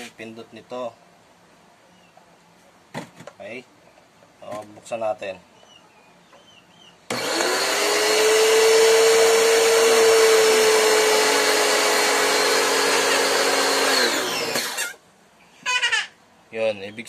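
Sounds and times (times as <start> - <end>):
pressure washer motor humming: 7.1 - 15.0
pressure washer winding down: 7.1 - 15.0.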